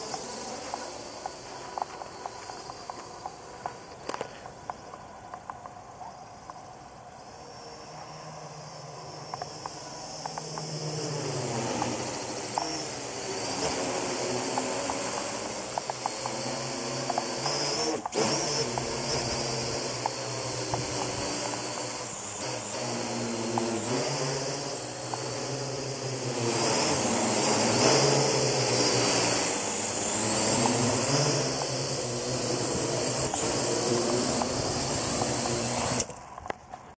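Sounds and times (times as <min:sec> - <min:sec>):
drone propellers whining: 0:00.0 - 0:36.9
sharp click: 0:14.5 - 0:16.4.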